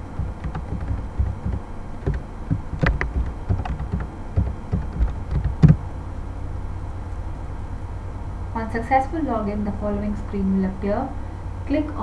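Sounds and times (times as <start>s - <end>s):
keyboard typing: 0.0s - 5.8s.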